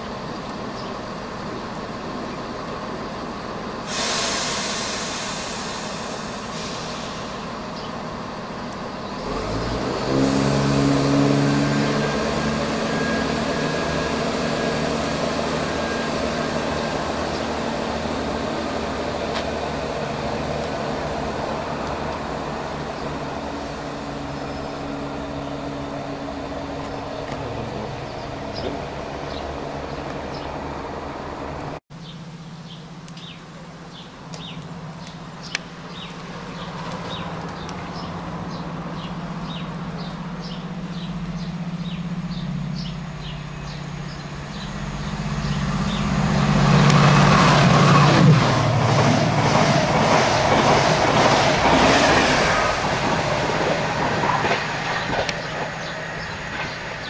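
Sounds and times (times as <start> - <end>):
diesel locomotive train approaching: 0.0 - 57.0
diesel train engine running: 0.0 - 57.0
wheel-and-rail rushing noise: 3.8 - 31.8, 34.4 - 57.0.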